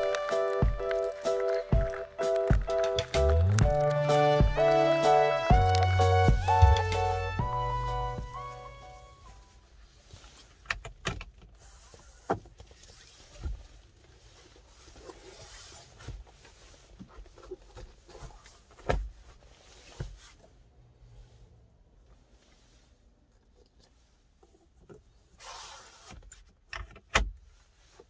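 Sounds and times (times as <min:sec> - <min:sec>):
music track: 0:00.0 - 0:09.5.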